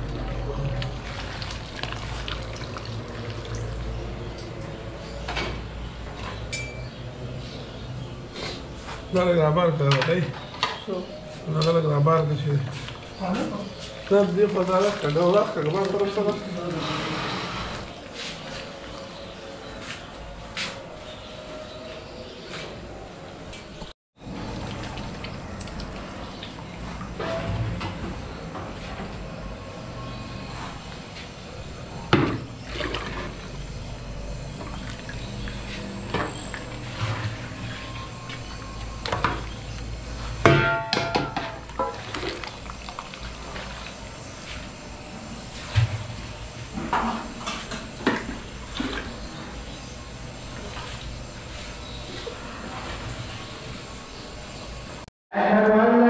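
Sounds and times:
broth sloshing and dripping: 0.7s - 4.8s, 12.7s - 16.8s, 24.2s - 27.2s, 32.2s - 40.4s, 41.4s - 44.7s, 48.0s - 49.7s
metal ladles clinking in a pot: 6.5s - 6.9s, 40.5s - 42.6s.

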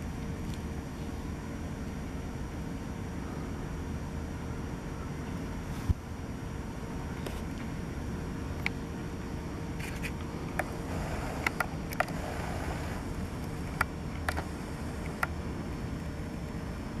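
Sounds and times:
wind rumble on microphone: 5.1s - 6.2s.

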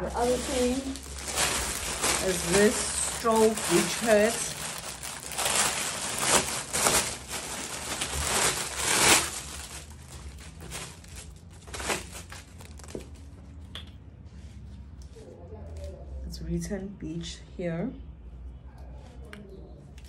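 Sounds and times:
packaging crinkling and rustling: 0.0s - 13.4s.

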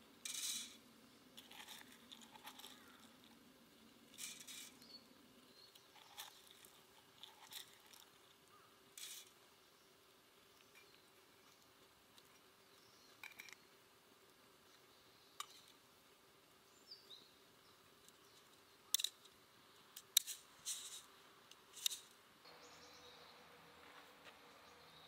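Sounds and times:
faint steady hiss: 0.0s - 25.0s
coffee beans rattling: 0.2s - 3.4s, 4.1s - 4.9s, 5.8s - 8.2s, 9.0s - 9.4s.

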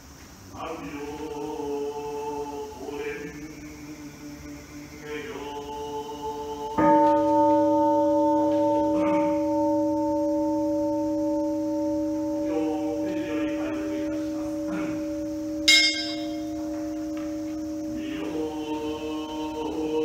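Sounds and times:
bowl bell ringing: 6.8s - 20.0s
bright metallic ring: 6.8s - 20.0s.

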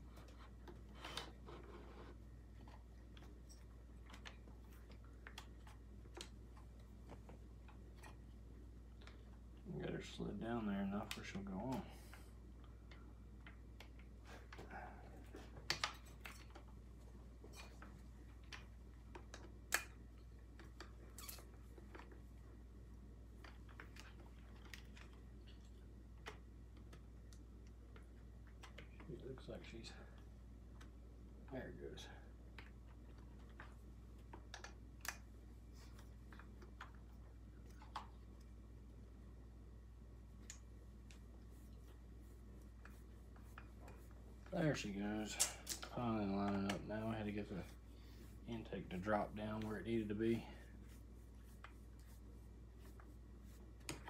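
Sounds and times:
low steady hum: 0.0s - 54.0s
small parts clicking and tapping: 42.8s - 47.1s.

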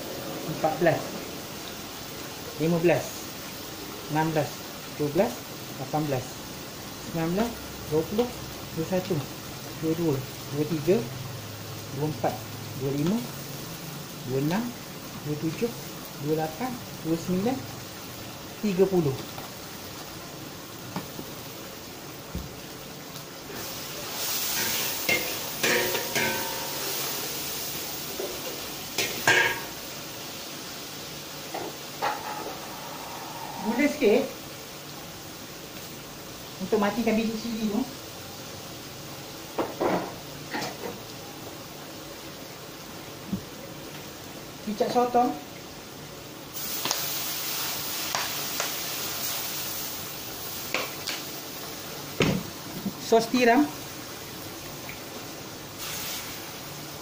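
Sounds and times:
paste sizzling in oil: 0.0s - 57.0s
metal spatula scraping a wok: 24.4s - 27.1s.

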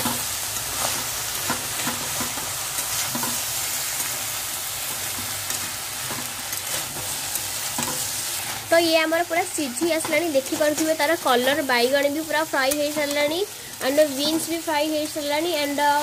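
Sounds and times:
spatula scraping and knocking pan: 0.0s - 4.2s, 4.8s - 8.7s
vegetables sizzling in a pan: 0.0s - 16.0s.

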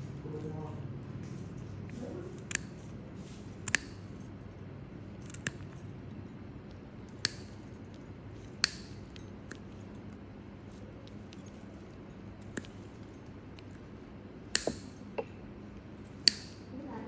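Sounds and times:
toenail nippers clicking: 2.4s - 2.8s, 3.6s - 4.1s, 5.2s - 5.8s, 7.1s - 9.6s, 14.5s - 15.3s, 16.1s - 16.7s.

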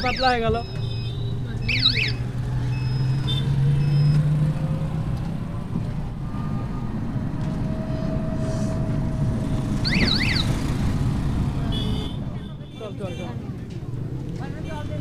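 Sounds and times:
vehicle rumble and rattle: 0.0s - 15.0s
low hum: 6.0s - 9.8s.

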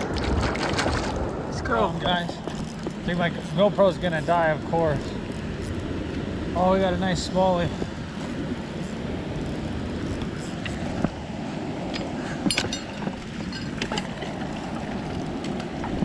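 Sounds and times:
wind on microphone: 0.0s - 16.0s
fishing gear clicks and knocks: 11.8s - 16.0s.

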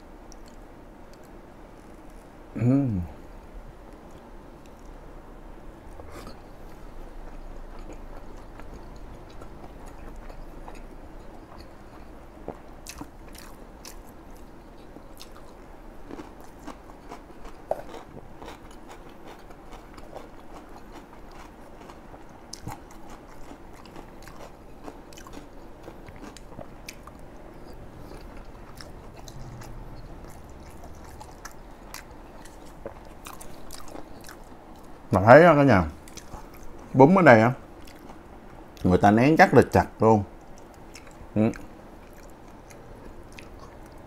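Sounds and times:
chewing and biting food: 7.2s - 35.0s, 36.0s - 37.0s, 37.7s - 38.9s, 40.4s - 44.0s.

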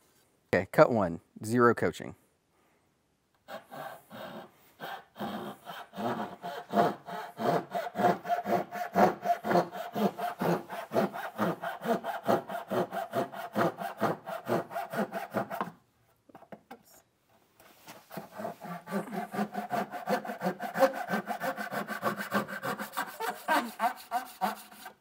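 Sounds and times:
saw rasping through wood: 3.4s - 15.8s, 18.1s - 25.0s.

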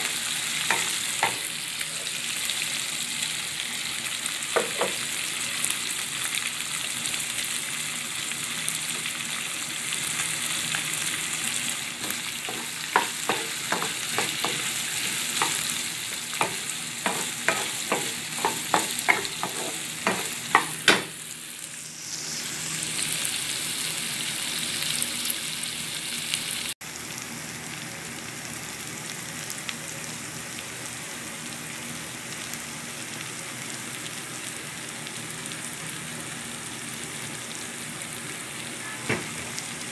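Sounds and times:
food sizzling in hot oil: 0.0s - 39.9s
wooden spoon knocking on pan: 0.7s - 1.5s, 4.6s - 5.0s, 12.0s - 15.7s, 16.4s - 21.2s.

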